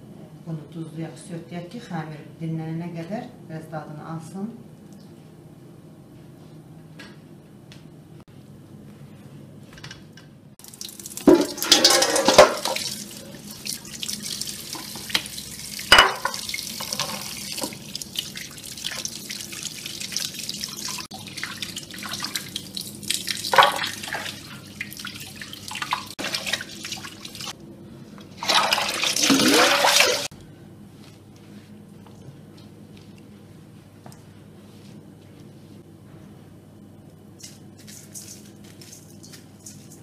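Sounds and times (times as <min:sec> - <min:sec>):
tap water running into bowl: 0:10.6 - 0:27.5, 0:28.4 - 0:30.3
water splashing: 0:10.6 - 0:27.5, 0:28.4 - 0:30.3.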